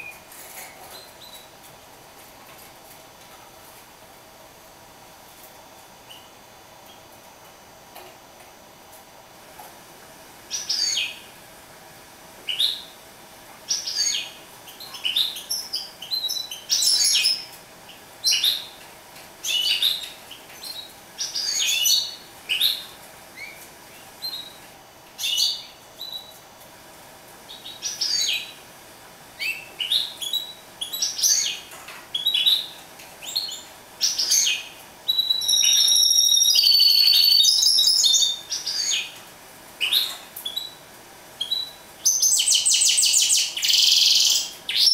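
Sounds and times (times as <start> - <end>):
finch singing: 10.5 - 11.2, 13.7 - 17.6, 19.4 - 23.6, 27.5 - 28.6, 29.4 - 39.2, 41.4 - 44.9.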